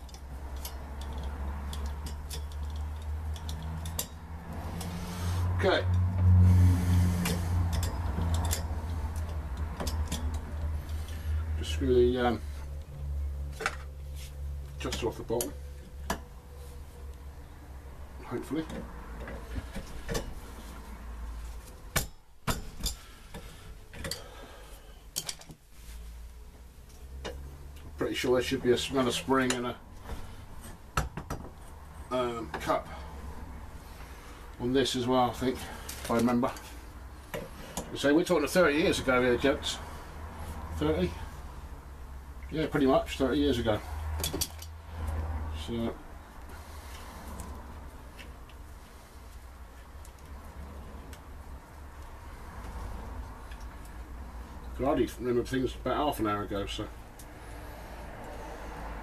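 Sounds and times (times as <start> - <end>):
metallic clicks and taps of tools: 0.0 - 4.2, 7.2 - 10.7, 44.2 - 45.2, 53.5 - 54.0.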